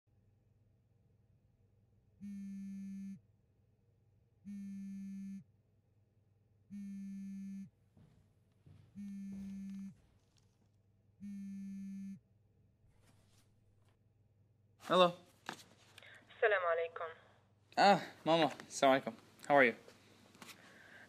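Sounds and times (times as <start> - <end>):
phone vibrating on table: 2.2 - 3.2, 4.5 - 5.5, 6.7 - 7.7, 8.9 - 10.0, 11.2 - 12.2.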